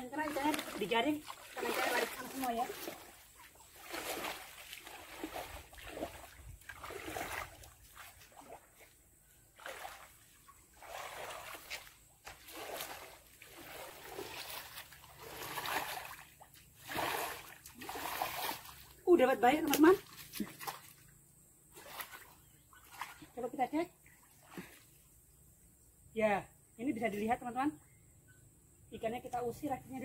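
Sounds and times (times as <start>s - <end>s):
water splashing and sloshing: 0.0s - 25.2s.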